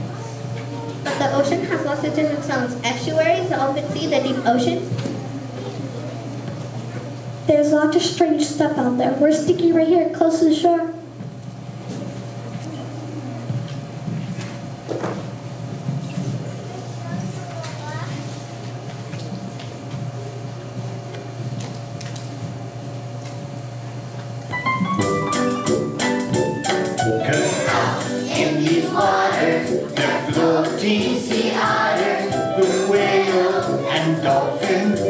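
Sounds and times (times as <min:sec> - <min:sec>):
steady hum with held tones: 0:00.0 - 0:35.0
choir singing with percussion: 0:26.6 - 0:35.0.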